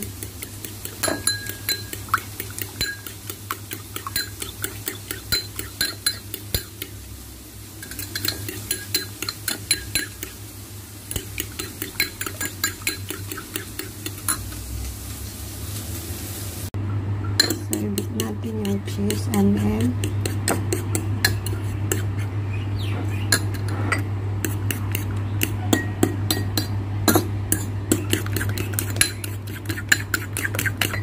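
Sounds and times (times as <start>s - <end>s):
fork clinking in ceramic bowl: 0.1s - 6.9s, 7.8s - 10.4s, 11.1s - 14.6s, 17.4s - 19.4s, 23.3s - 31.0s
steady low hum: 16.7s - 31.0s.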